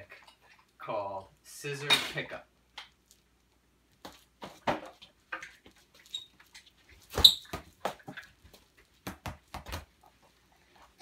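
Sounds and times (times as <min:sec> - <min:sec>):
sneakers squeaking: 0:06.0 - 0:06.4, 0:07.1 - 0:07.7.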